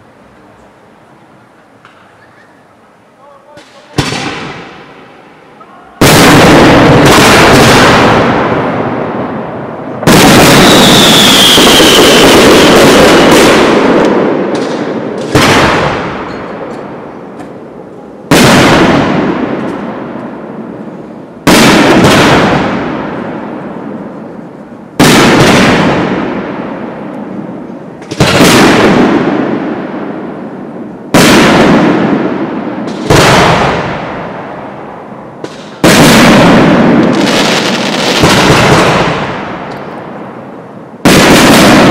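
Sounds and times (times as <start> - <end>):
falling firework whistle: 10.1 - 12.6.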